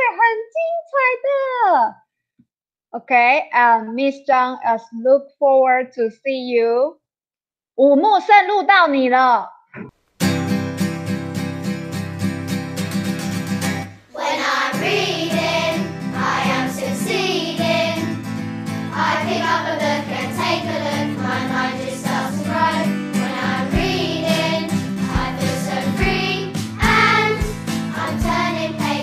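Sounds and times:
backing track music: 0:10.2 - 0:29.0
children's song singing: 0:13.9 - 0:29.0.

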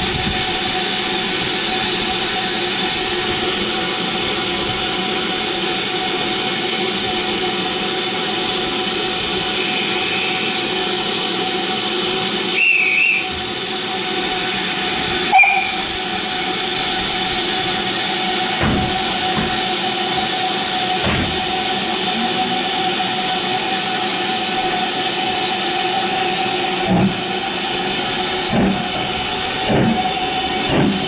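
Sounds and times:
steam hissing from locomotive: 0:00.0 - 0:31.0
guard's whistle: 0:12.6 - 0:13.3, 0:15.3 - 0:15.9
low thuds: 0:18.6 - 0:19.8, 0:21.0 - 0:21.6, 0:26.8 - 0:27.3, 0:28.5 - 0:31.0.

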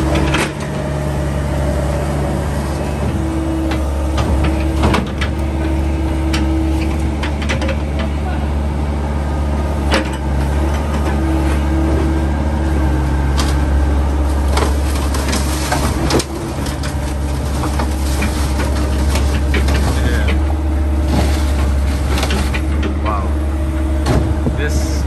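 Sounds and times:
metal clanks and knocks: 0:00.0 - 0:01.0, 0:03.0 - 0:08.4, 0:09.8 - 0:12.3, 0:14.4 - 0:24.6
diesel engine droning: 0:00.0 - 0:25.0.

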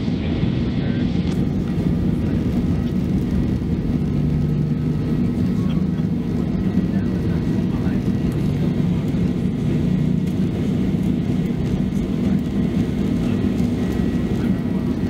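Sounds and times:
jet engines roaring: 0:00.0 - 0:15.0
wheel rumble: 0:01.2 - 0:15.0.

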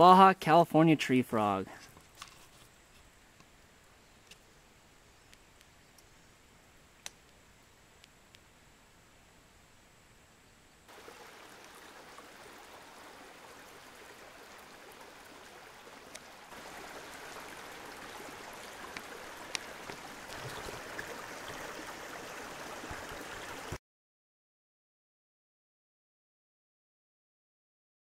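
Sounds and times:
stream running over rocks: 0:10.9 - 0:23.8
faint ticks: 0:16.1 - 0:16.3, 0:18.9 - 0:21.1.

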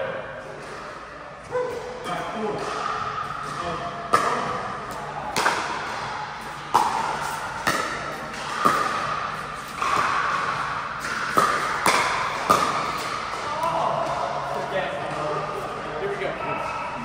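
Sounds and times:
paddles hitting plastic ball: 0:04.1 - 0:14.2.

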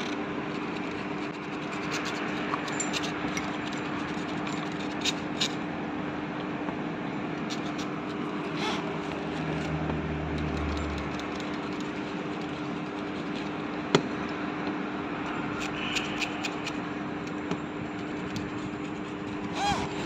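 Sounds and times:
steady mechanical hum: 0:00.0 - 0:20.0
metallic clink: 0:01.9 - 0:03.8.

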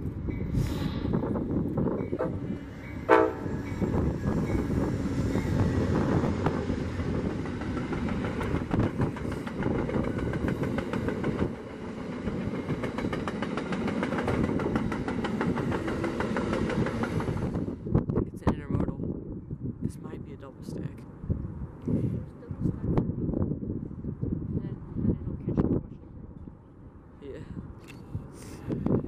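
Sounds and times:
train rumble: 0:00.0 - 0:19.2
wheels clacking on rails: 0:01.5 - 0:17.7
train horn blast: 0:02.2 - 0:03.9.

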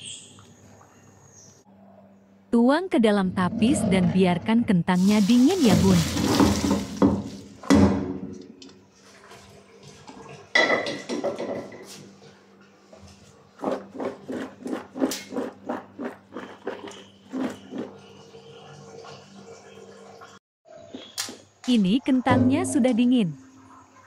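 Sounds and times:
water and potatoes splashing: 0:05.0 - 0:07.7
potatoes knocking in colander: 0:05.7 - 0:08.0.

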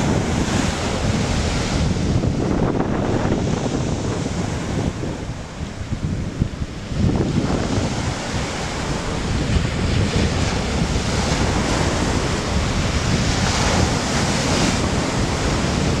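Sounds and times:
wind buffeting microphone: 0:00.0 - 0:16.0
surf breaking on pebble beach: 0:06.8 - 0:16.0.

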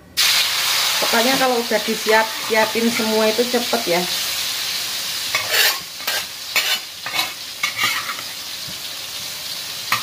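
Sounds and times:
spice paste sizzling in hot oil: 0:00.2 - 0:10.0
metal spatula scraping a wok: 0:02.1 - 0:03.3, 0:05.2 - 0:08.4.

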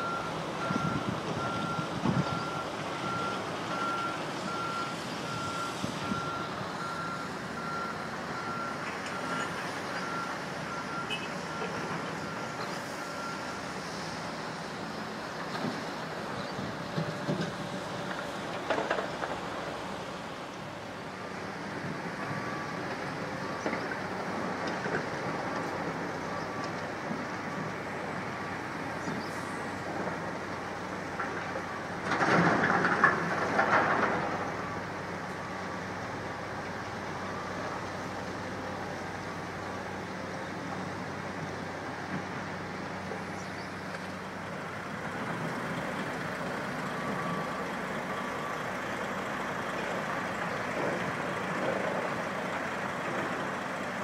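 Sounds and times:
heavy demolition machinery: 0:21.2 - 0:43.3.

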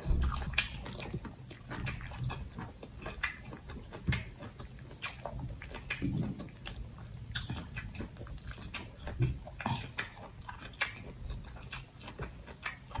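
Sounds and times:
soft low thumps: 0:00.0 - 0:02.7
chewing: 0:00.0 - 0:13.0
fingers squishing wet food: 0:00.0 - 0:13.0.

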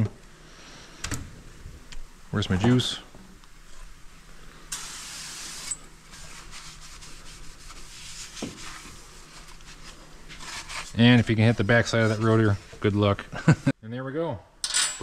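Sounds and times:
aerosol spray hissing: 0:04.7 - 0:05.8.

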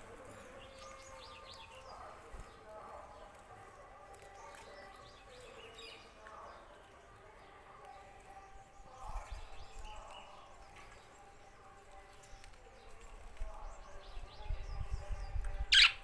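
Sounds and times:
budgerigar chirping and warbling: 0:15.7 - 0:16.0
loud sharp bird call: 0:15.7 - 0:16.0.

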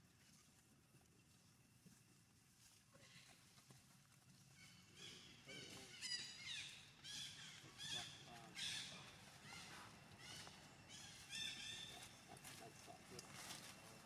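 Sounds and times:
monkeys calling: 0:05.0 - 0:12.9.

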